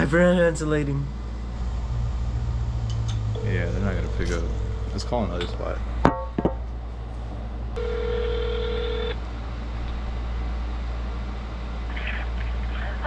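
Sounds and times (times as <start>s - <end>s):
telephone ringback tone: 7.8s - 9.2s.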